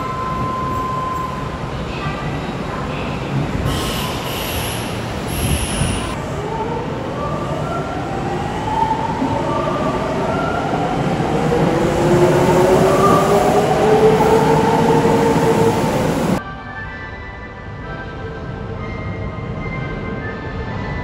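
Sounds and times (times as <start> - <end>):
train wheels rumbling: 0.0 - 16.4.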